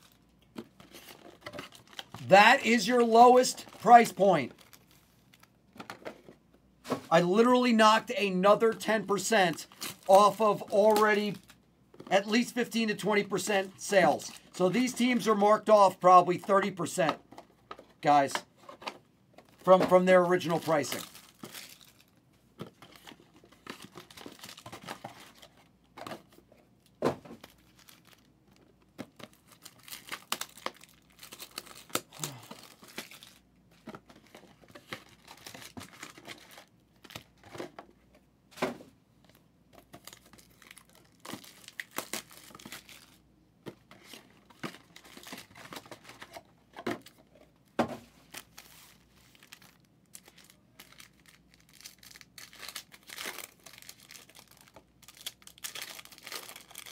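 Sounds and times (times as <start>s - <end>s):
packaging crinkling and tearing: 0.0s - 2.4s, 3.4s - 5.6s, 20.4s - 25.6s, 27.4s - 37.5s, 39.3s - 43.2s, 44.0s - 46.4s, 48.2s - 56.9s.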